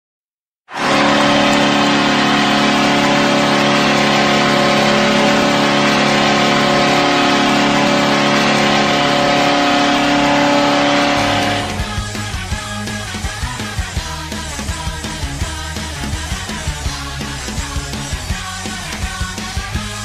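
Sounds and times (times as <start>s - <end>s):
goal horn blast: 0.7s - 12.1s.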